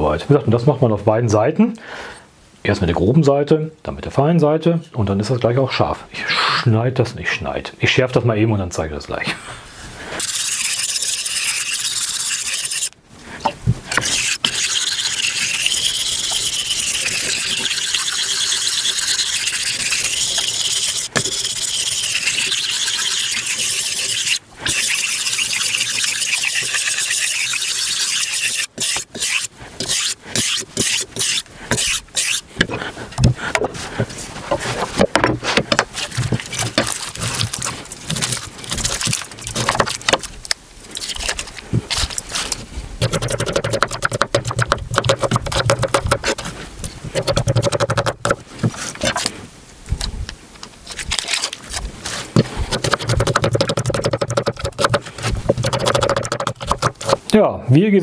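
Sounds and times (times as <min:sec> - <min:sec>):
knife scraping on whetstone: 0:10.2 - 0:13.0, 0:13.9 - 0:32.8, 0:51.2 - 0:57.2
knife slicing onion: 0:43.0 - 0:46.4, 0:47.1 - 0:48.4, 0:52.4 - 0:57.2.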